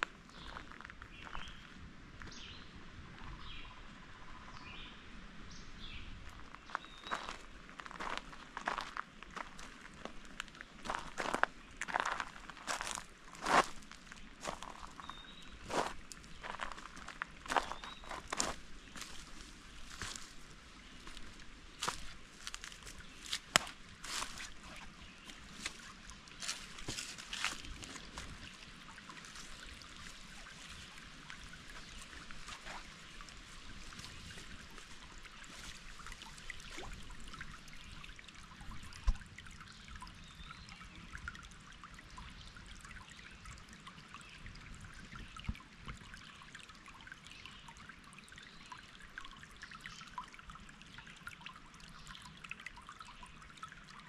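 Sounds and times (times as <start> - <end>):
water trickling: 6.2 - 54.0.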